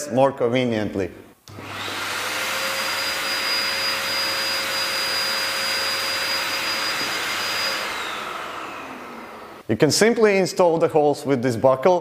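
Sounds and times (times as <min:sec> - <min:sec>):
pet dryer blowing air: 0:01.5 - 0:09.6.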